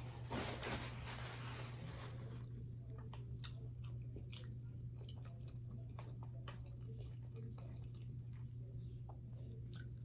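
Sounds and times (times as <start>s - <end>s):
paper napkin rustling: 0.0s - 2.4s
low electrical hum: 0.0s - 10.0s
chewing: 2.9s - 10.0s.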